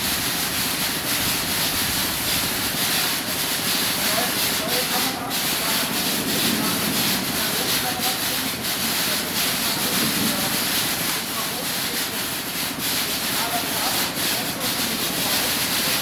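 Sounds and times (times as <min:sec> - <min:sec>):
conveyor machinery running: 0:00.0 - 0:16.0
murmur of voices: 0:04.0 - 0:12.5.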